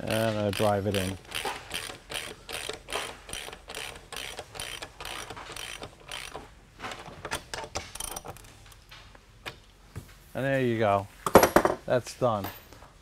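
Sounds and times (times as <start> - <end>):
socket ratchet clicking: 0.1 - 6.4.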